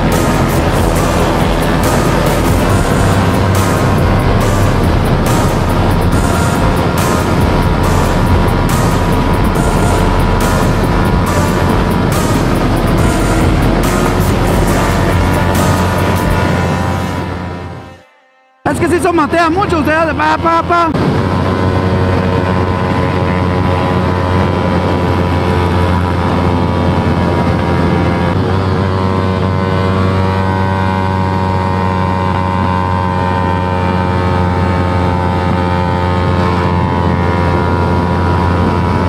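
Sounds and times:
motorcycle engine at speed: 0.0 - 18.1, 19.8 - 39.0
wind noise: 19.3 - 39.0.

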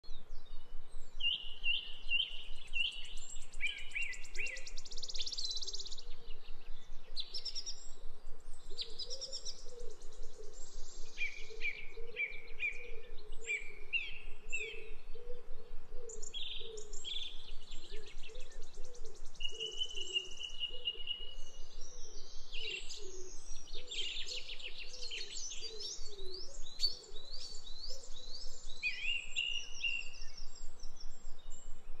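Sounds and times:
birds chirping and trilling: 0.1 - 32.0.

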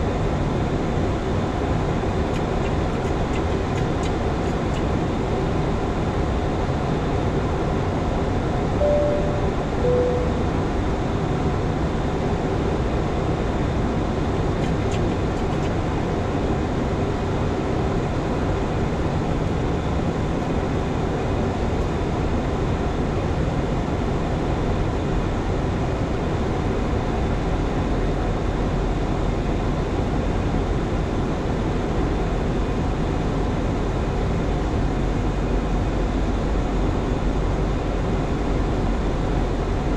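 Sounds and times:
short cockpit tones: 8.8 - 10.6.

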